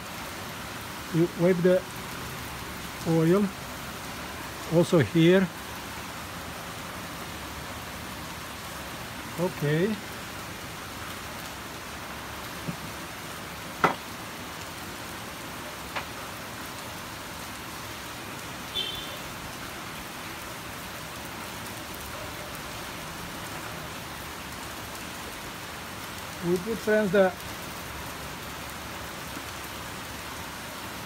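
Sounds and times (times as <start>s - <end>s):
heavy rain: 0.0s - 31.0s
sharp knocks: 13.8s - 14.0s.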